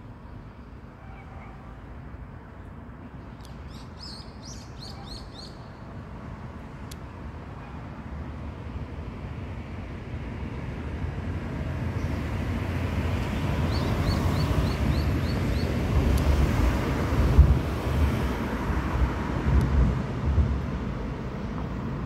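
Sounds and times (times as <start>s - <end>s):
low gusty rumble: 14.8s - 22.0s.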